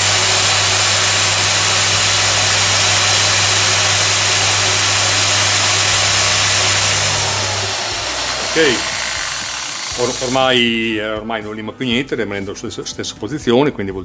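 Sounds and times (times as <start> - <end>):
grinder humming and hissing: 0.0 - 10.8.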